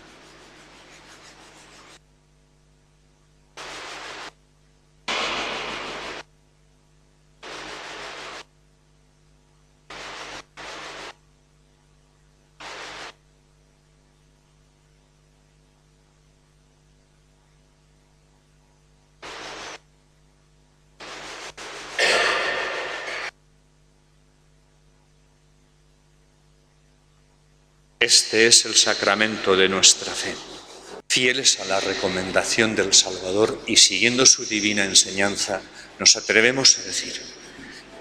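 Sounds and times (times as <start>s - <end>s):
static hiss bursts: 0.0s - 2.0s, 3.5s - 4.4s, 5.0s - 6.3s, 7.4s - 8.5s, 9.9s - 11.2s, 12.6s - 13.2s, 19.2s - 19.8s, 21.0s - 23.3s, 28.0s - 38.0s
low electrical hum: 0.0s - 38.0s.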